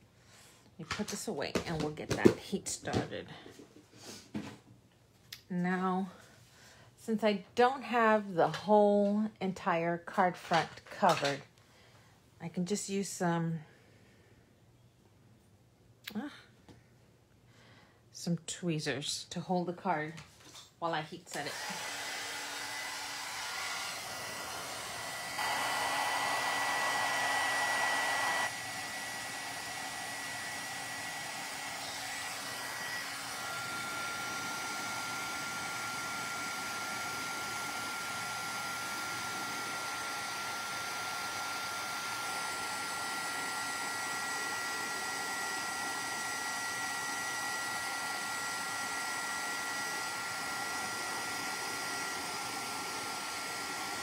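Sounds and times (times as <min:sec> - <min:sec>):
heat gun blowing with fan whine: 0:21.3 - 0:54.0.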